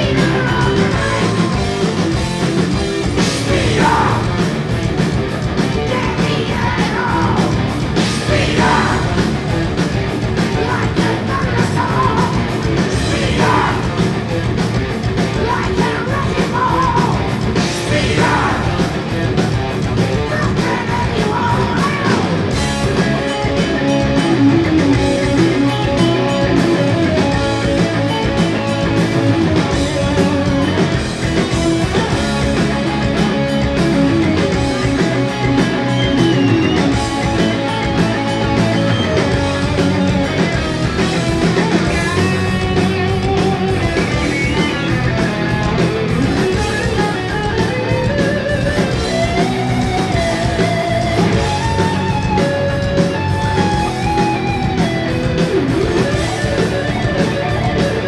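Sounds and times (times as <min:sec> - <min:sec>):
lead vocal singing: 0:00.0 - 0:01.7, 0:03.2 - 0:04.7, 0:05.8 - 0:09.6, 0:10.4 - 0:14.3, 0:15.3 - 0:19.2, 0:20.2 - 0:22.5
heavy metal band playing live: 0:00.0 - 0:58.0.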